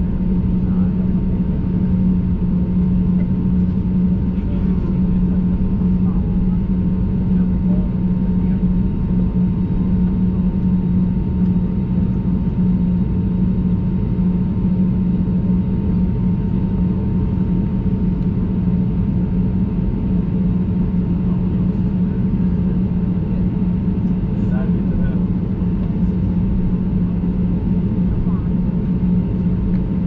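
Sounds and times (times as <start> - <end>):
airplane cabin engine drone: 0.0 - 30.0.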